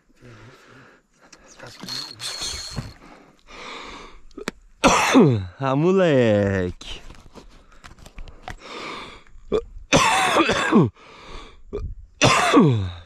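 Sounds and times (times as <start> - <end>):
man gasping: 2.1 - 4.2
man coughing and spluttering: 4.4 - 5.5, 9.5 - 10.9, 12.2 - 13.0.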